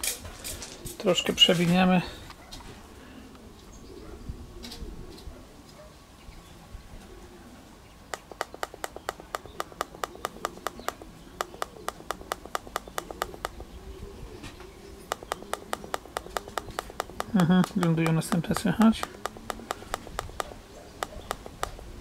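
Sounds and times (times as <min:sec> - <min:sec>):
rapid button clicks: 0:08.1 - 0:13.7, 0:15.1 - 0:21.9.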